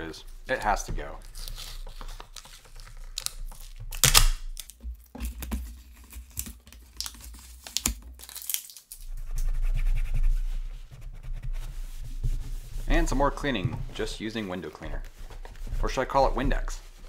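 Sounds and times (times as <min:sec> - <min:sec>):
sticker peeling and crinkling: 0:00.4 - 0:09.5
paper towel rubbing: 0:09.0 - 0:17.0.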